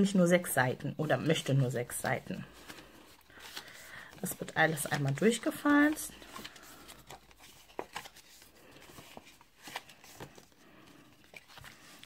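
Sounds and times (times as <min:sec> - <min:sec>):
stiff paper crackling and rubbing: 0:01.4 - 0:10.6.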